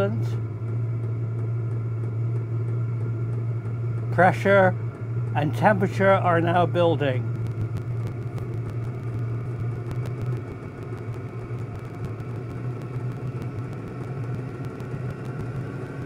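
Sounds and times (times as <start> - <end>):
heater fan and combustion rush: 0.0 - 16.0
low hum: 0.0 - 16.0.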